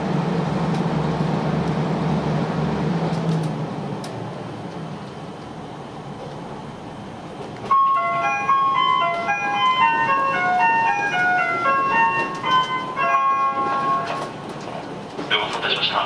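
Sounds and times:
train cabin noise: 0.0 - 16.0
bell-like chime melody: 7.7 - 14.1.

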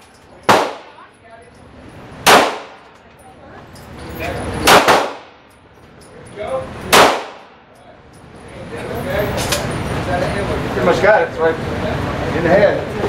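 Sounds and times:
pistol shots: 0.4 - 1.0, 2.2 - 3.0, 4.6 - 5.5, 6.9 - 7.6.

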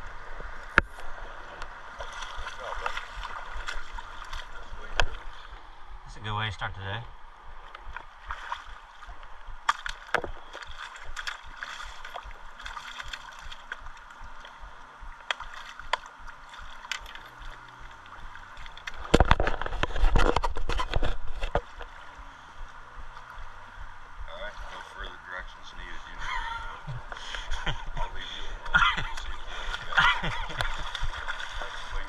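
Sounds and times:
river water rushing: 0.0 - 5.9, 7.3 - 19.6, 26.0 - 32.0.

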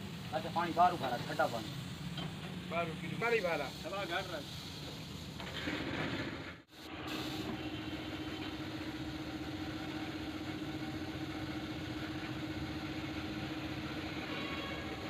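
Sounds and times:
air compressor humming: 6.7 - 15.0.

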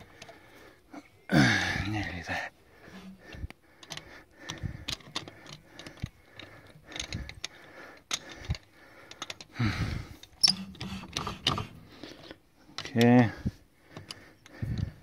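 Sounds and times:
wheel brace clicking on bolts: 2.9 - 9.6, 10.2 - 11.8.

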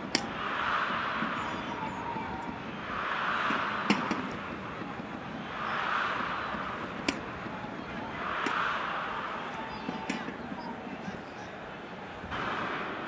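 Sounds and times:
rackets striking shuttlecock: 0.0 - 0.4, 3.5 - 4.6, 6.9 - 7.5, 8.2 - 8.9, 9.5 - 10.6
arena crowd noise: 0.0 - 13.0.

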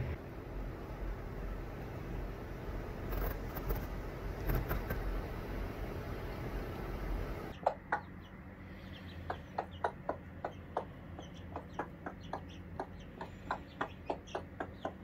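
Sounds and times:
chicks peeping: 7.5 - 15.0
hen clucking: 7.5 - 15.0.

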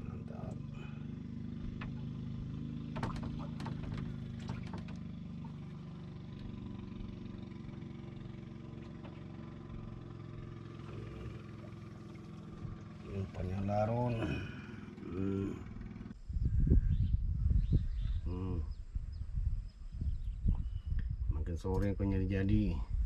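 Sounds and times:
motor engine humming: 0.0 - 16.3
sharp clicks and knocks: 2.9 - 5.1.

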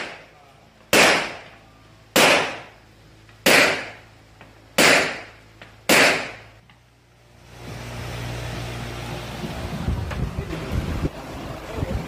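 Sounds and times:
pistol shots echoing indoors: 0.9 - 1.5, 2.2 - 2.7, 3.4 - 4.0, 4.8 - 6.5.

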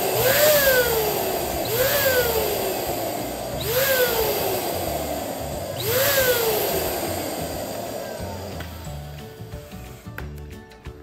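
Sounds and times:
whooping tone rising and sliding: 0.0 - 10.1
electric balloon pump running: 0.0 - 10.6.

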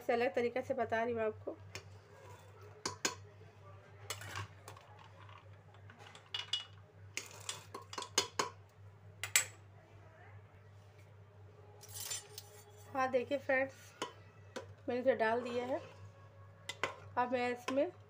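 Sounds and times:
low steady hum: 0.0 - 18.0
metal utensils clinking on pot: 4.1 - 5.4, 6.0 - 8.6, 11.8 - 12.9, 16.7 - 17.9.

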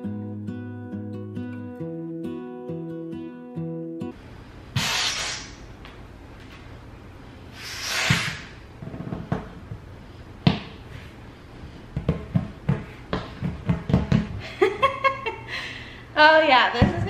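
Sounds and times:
knocks and thumps from handling: 11.9 - 14.4.

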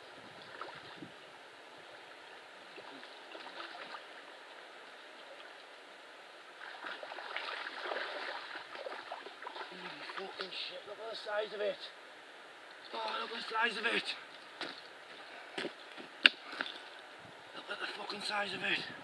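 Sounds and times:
water gurgling and splashing: 2.8 - 4.3, 6.6 - 10.4.

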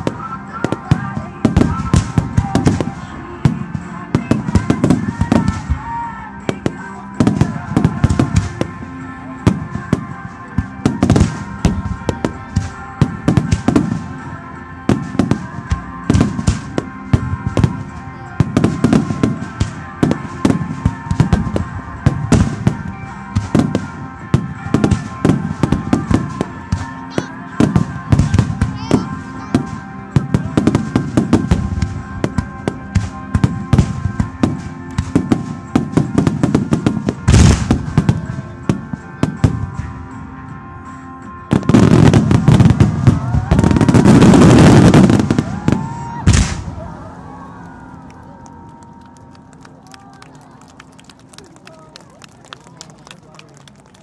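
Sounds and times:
fireworks booming and crackling: 0.0 - 40.2, 41.5 - 47.0.

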